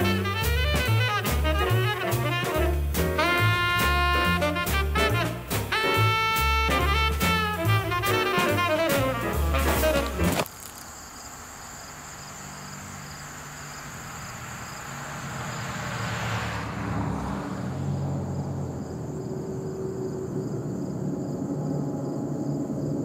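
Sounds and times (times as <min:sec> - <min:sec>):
jazz music: 0:00.0 - 0:10.4
insect chirring: 0:10.4 - 0:15.6
vehicle passing on road: 0:11.4 - 0:23.0.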